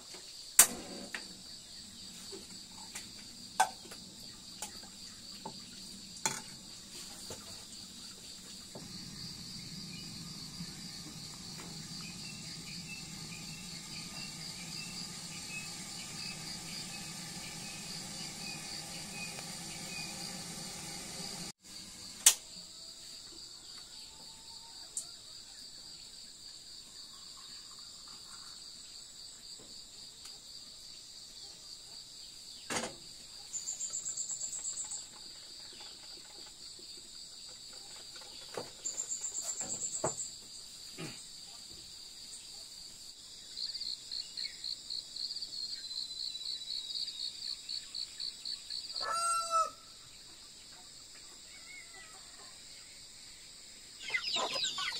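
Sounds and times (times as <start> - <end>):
insects chirring: 0.0 - 54.9
sharp click: 0.6 - 0.8, 22.2 - 22.4
rooster crowing: 48.9 - 50.0.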